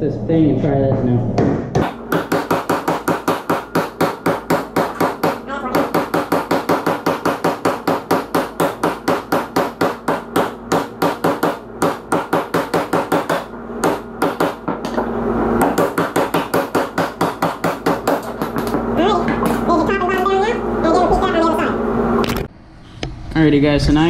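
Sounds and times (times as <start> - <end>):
hammer striking metal: 1.4 - 19.7.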